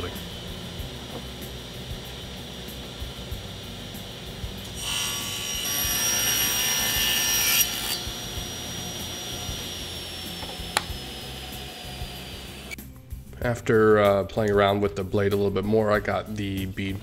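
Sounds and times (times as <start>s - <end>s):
table saw whine: 0.0s - 12.8s
saw blade cutting board: 4.7s - 12.8s.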